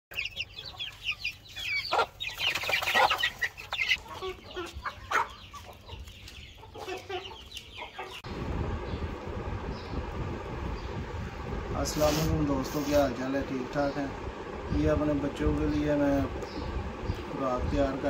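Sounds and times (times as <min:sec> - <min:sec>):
chickens clucking: 0:00.1 - 0:08.3, 0:11.8 - 0:18.0
chicks peeping: 0:00.1 - 0:18.0
low steady hum: 0:08.2 - 0:18.0.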